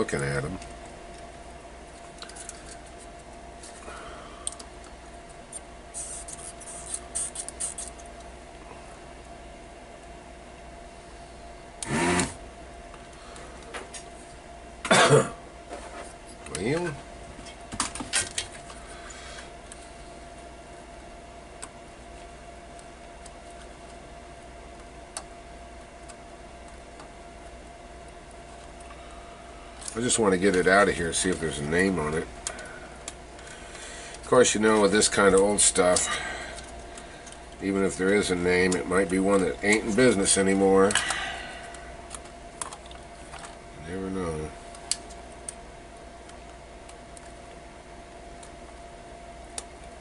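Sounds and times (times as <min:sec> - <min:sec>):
faint steady hum: 0:00.0 - 0:50.0
hand tools scratching circuit board: 0:06.0 - 0:08.0.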